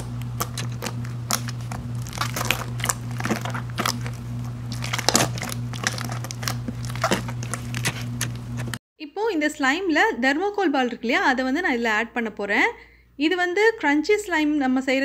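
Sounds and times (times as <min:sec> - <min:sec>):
low hum: 0:00.0 - 0:08.8
slime squelching: 0:00.0 - 0:08.8.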